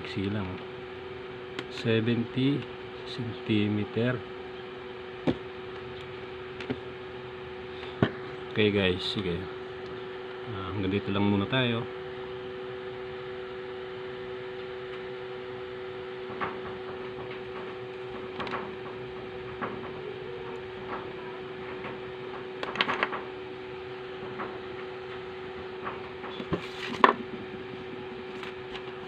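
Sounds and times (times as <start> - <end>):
steady electrical hum: 0.0 - 29.0
objects handled on a workbench: 5.2 - 6.9, 20.8 - 23.3, 24.2 - 29.0.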